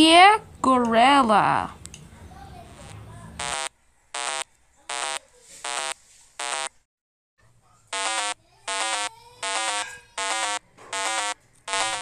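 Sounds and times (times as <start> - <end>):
harsh electronic buzzer beeps: 2.6 - 6.8, 7.9 - 12.0.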